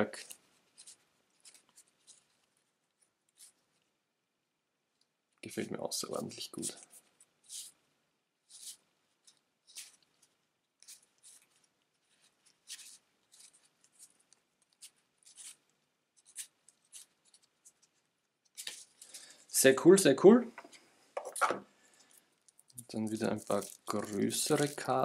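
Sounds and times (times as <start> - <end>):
cards sliding papery scrapes: 0.2 - 2.5, 8.4 - 19.4, 23.0 - 25.0.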